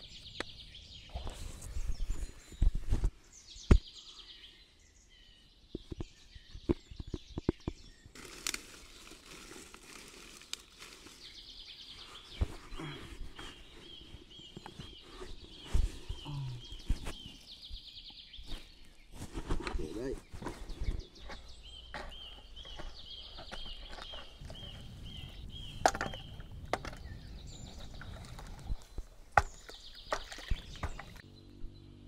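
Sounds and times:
bird chirping: 0.0 - 8.2, 10.9 - 32.0
rustling of handling: 8.2 - 17.5.

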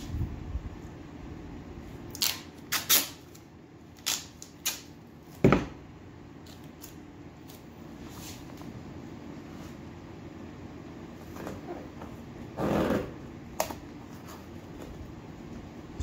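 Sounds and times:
duct tape tearing from roll: 2.1 - 4.9.

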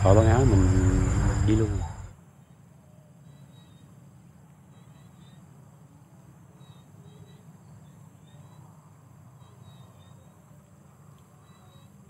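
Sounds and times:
steady low rumble: 0.0 - 2.2
insects chirping: 0.0 - 12.0.

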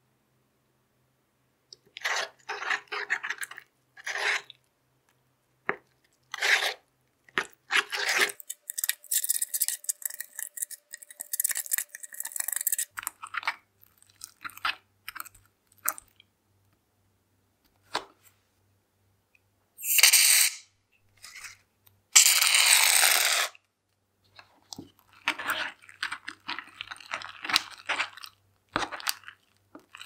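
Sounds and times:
slime squelching and crackling: 1.8 - 4.6, 6.0 - 16.2, 24.3 - 30.0.

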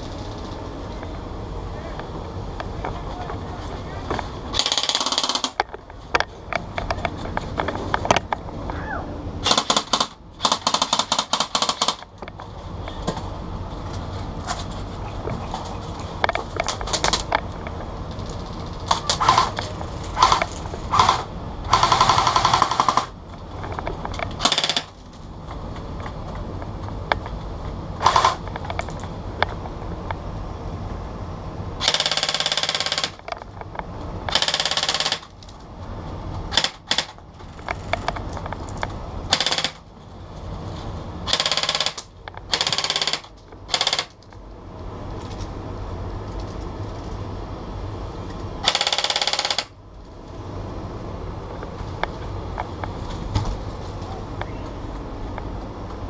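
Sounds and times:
airsoft gun firing: 9.4 - 12.0.

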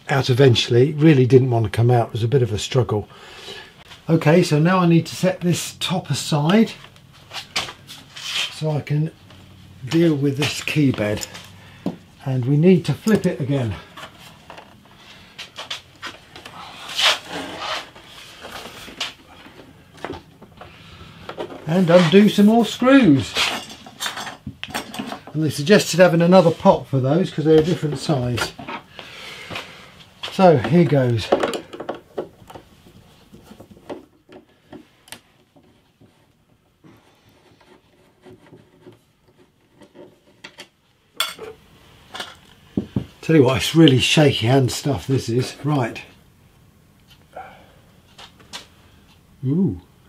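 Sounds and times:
scraping rustle: 6.7 - 8.7, 13.1 - 19.6, 20.8 - 28.9.

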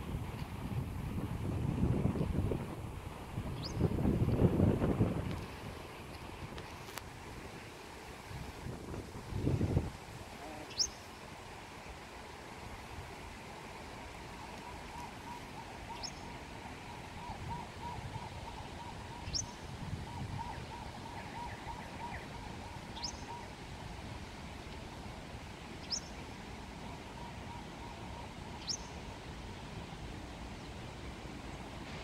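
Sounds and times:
shallow stream rushing: 0.0 - 32.0
wagtail calling: 10.3 - 11.2, 14.3 - 23.6, 25.7 - 29.0.

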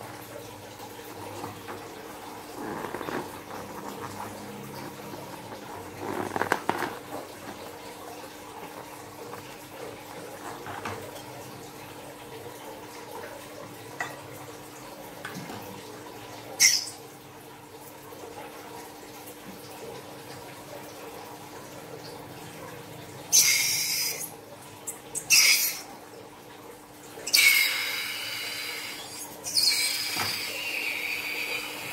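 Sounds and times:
rubber balloon squeaking: 2.5 - 7.6.

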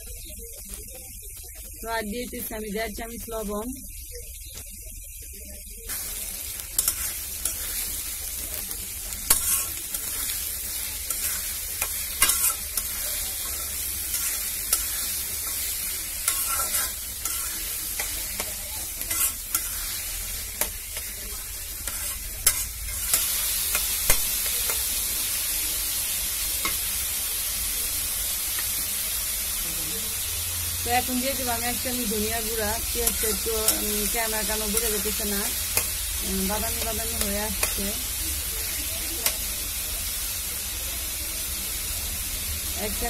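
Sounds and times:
onions sizzling in oil: 0.0 - 43.0
metal spatula scraping pan: 6.7 - 7.9, 9.2 - 23.8.

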